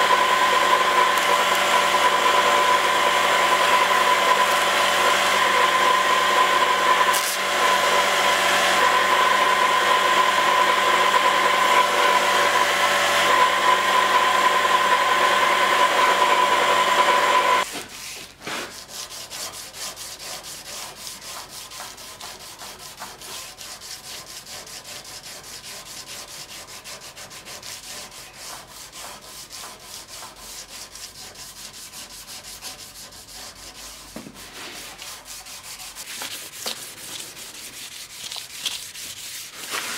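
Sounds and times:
belt grinder whining: 0.0s - 17.7s
sandpaper rubbing on metal blade: 17.6s - 39.9s.

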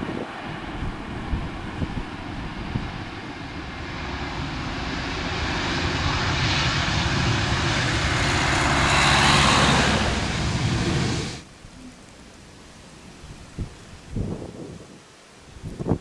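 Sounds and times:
jet engines rolling on runway: 0.0s - 11.5s.

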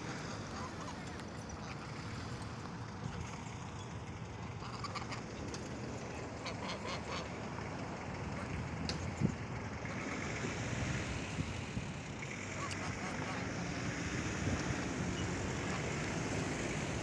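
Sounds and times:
geese calling: 0.0s - 2.4s, 4.4s - 8.6s, 12.3s - 13.8s.

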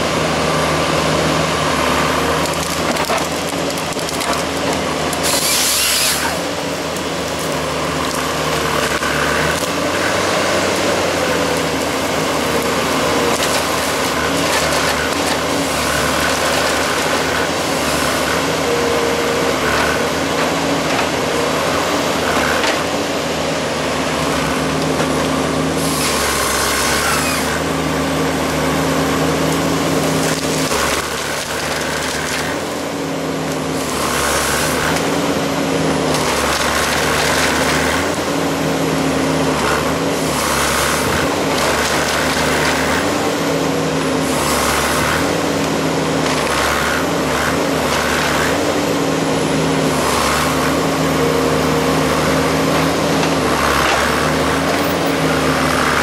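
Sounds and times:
harvester engine and hydraulics whining: 0.0s - 56.0s
wood and branches cracking: 2.4s - 17.5s, 29.5s - 32.8s, 36.0s - 38.2s, 40.8s - 43.2s, 44.9s - 47.0s
chain saw cutting through stem: 5.2s - 6.5s.

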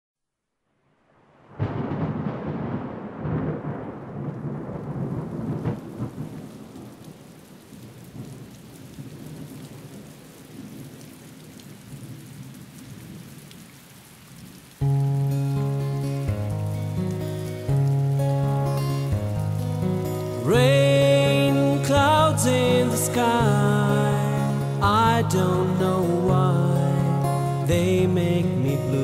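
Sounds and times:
steady rain: 0.9s - 29.0s
thunder rolling: 1.4s - 8.4s
sharp thunder crack: 1.5s - 7.0s
music: 14.8s - 29.0s.

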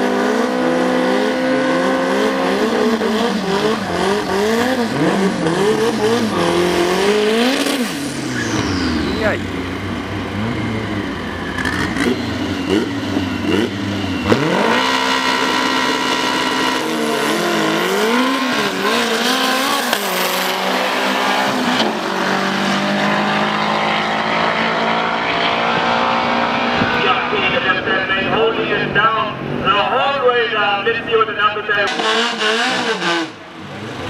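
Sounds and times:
racing car engines revving: 0.0s - 34.0s.

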